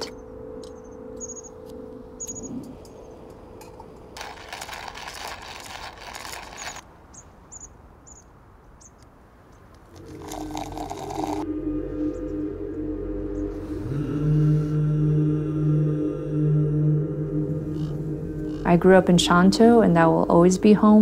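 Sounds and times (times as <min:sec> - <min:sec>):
high bird chirps: 0:00.0 - 0:01.6, 0:06.6 - 0:09.0
low music drone: 0:00.0 - 0:04.4, 0:10.0 - 0:21.0.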